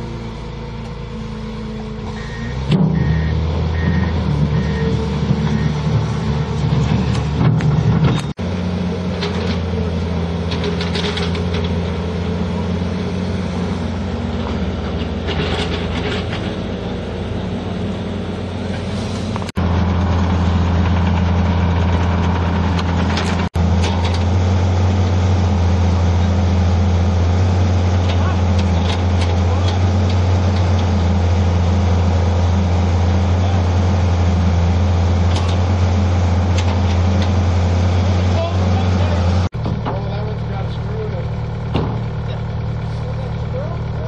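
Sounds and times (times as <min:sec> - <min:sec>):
diesel engines running: 0:00.0 - 0:44.0
short scraping noises: 0:18.7 - 0:19.5.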